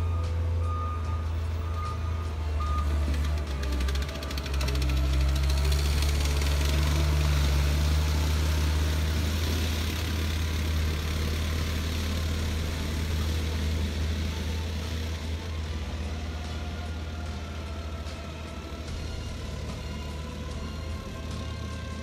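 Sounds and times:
diesel engine rumble: 0.0s - 22.0s.

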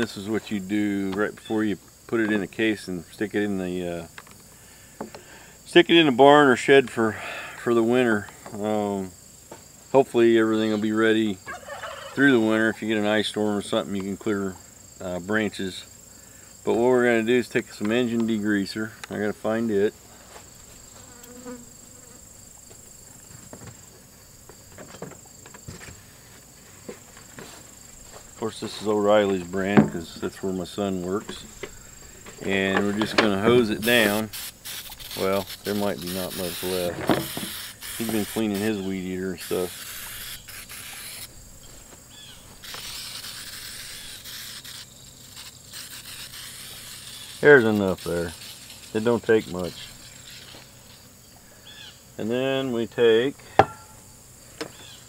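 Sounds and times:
high-pitched insect chorus: 0.0s - 55.0s
aerosol can spraying: 33.6s - 38.8s, 39.4s - 41.3s, 42.6s - 50.7s.

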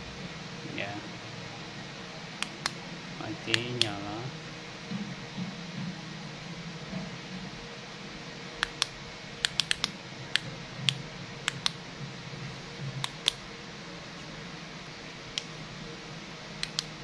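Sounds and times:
flashlight switch clicking: 8.6s - 9.9s, 10.9s - 11.8s, 16.6s - 16.9s.

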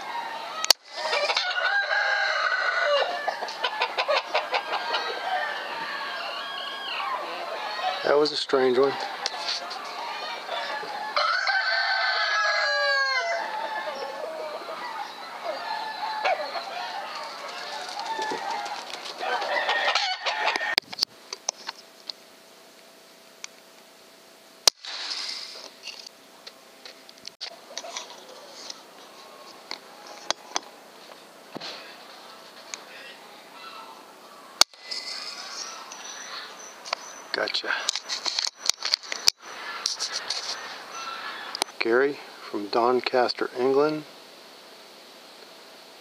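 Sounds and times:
clucking animal calls: 0.0s - 1.9s, 2.8s - 11.3s, 12.6s - 20.8s, 27.4s - 30.8s, 31.6s - 42.5s
faint steady hum: 0.0s - 46.0s.

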